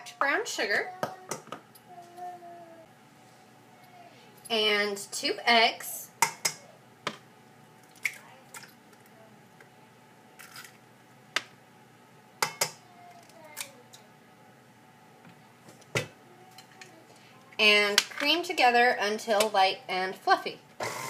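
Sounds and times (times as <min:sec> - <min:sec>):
eggs tapping on metal bowl: 0:12.4 - 0:12.8.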